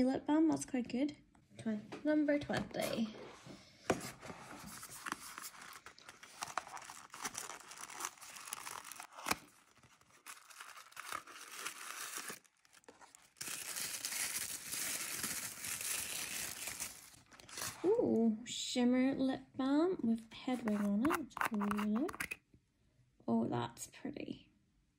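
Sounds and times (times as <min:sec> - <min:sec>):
cardboard box being handled: 0:03.9 - 0:13.8
tissue paper crinkling: 0:04.2 - 0:17.9.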